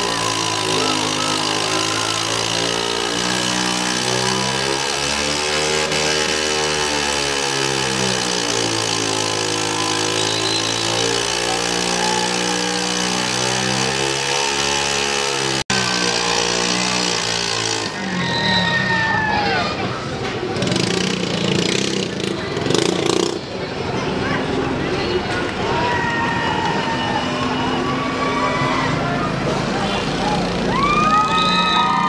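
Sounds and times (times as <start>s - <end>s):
scooter engine revving high: 0.0s - 25.1s.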